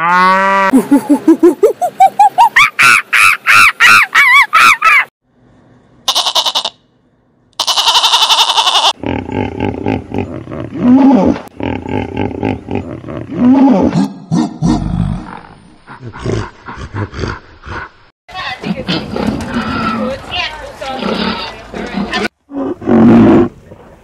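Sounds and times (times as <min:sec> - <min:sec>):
monkey calls: 0:00.7 - 0:05.1
hippopotamus grunts: 0:09.0 - 0:17.9.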